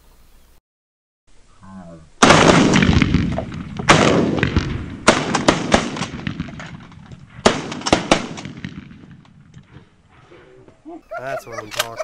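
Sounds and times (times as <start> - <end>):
shotgun blasts: 2.2 - 9.8.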